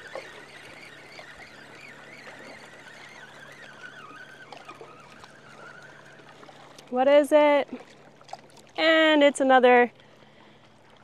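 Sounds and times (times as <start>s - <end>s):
fishing reel whirring: 0.0s - 7.4s.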